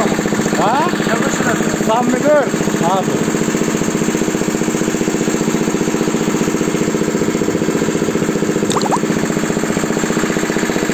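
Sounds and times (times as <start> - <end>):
short high chirps: 8.7 - 9.1.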